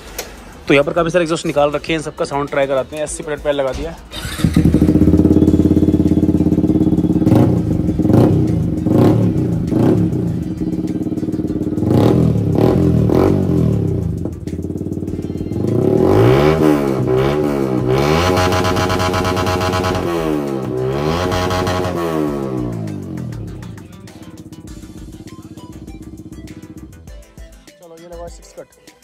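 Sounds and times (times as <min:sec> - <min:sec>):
motorcycle engine idling and revving: 0:04.1 - 0:27.2.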